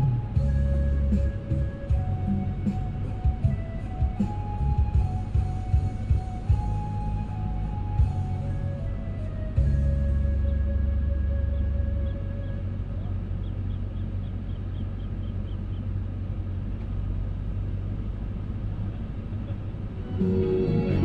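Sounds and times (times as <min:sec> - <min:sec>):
background music: 0:00.0 - 0:12.9, 0:19.8 - 0:21.0
steady low rumble: 0:00.0 - 0:21.0.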